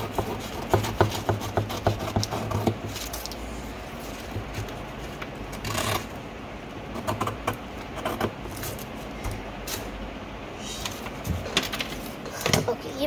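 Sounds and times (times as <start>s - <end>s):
scissors snipping paper: 0.0s - 3.4s
low steady hum: 0.0s - 13.0s.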